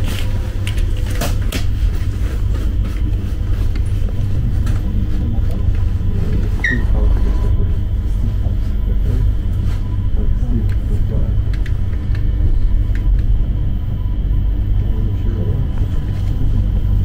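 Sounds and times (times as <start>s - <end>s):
train rumbling: 0.0s - 17.0s
brief high squeak: 6.6s - 6.9s.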